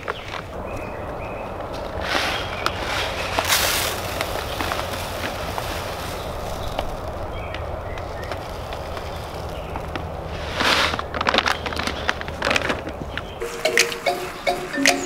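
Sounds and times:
bag rustling and crinkling: 1.6s - 13.4s
grass seed pouring into hopper: 2.0s - 7.1s.

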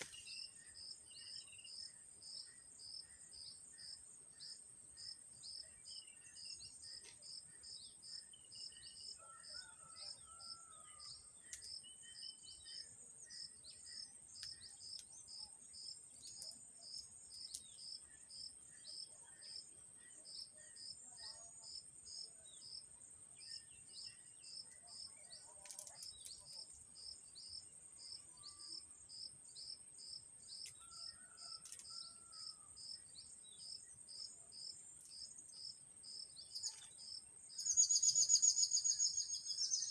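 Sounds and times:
insect chorus chirping: 25.7s - 39.9s.

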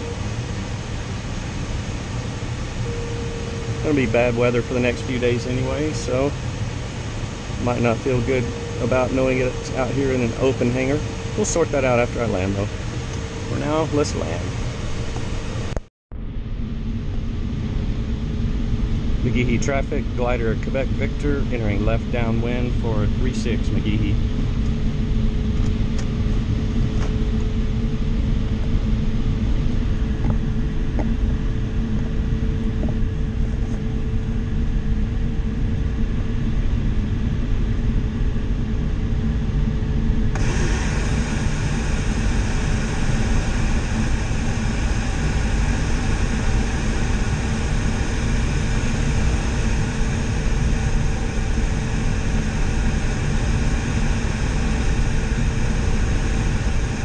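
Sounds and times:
faint steady tone: 0.0s - 14.7s
low rumble: 0.0s - 57.0s
air rushing over glider: 40.2s - 57.0s.

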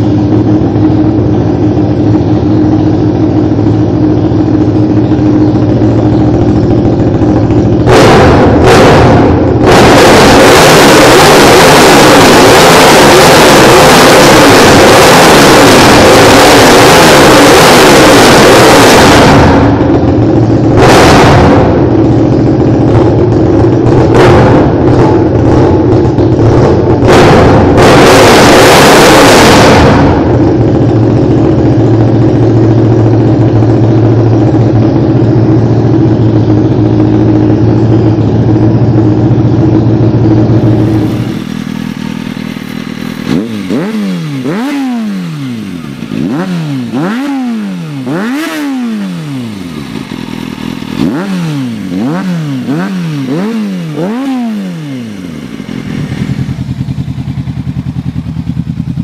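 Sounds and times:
motorcycle engine revving: 0.0s - 59.0s
motorcycle engine running: 0.0s - 59.0s.

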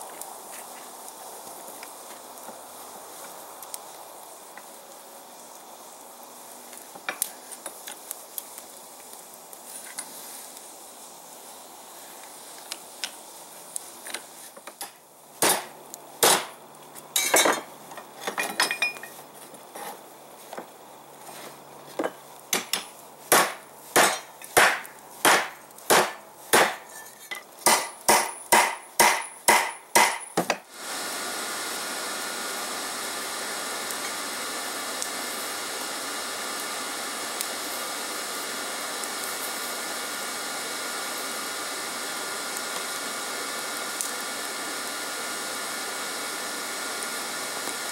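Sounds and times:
hammer striking hot steel: 14.6s - 16.6s, 17.2s - 19.2s, 22.0s - 30.7s.

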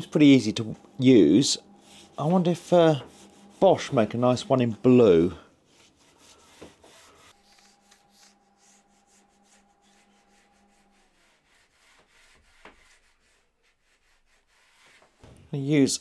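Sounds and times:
faint steady hum: 0.0s - 12.0s
iron rubbing along edge: 0.0s - 15.1s.

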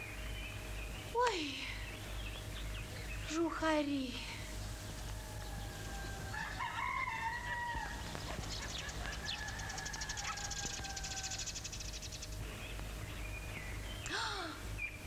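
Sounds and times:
rooster crowing: 4.8s - 11.6s.

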